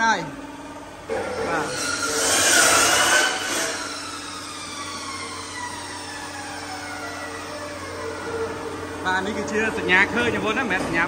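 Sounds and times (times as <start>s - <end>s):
chop saw cutting wood: 1.6s - 4.0s
saw blade spinning down: 1.6s - 5.8s.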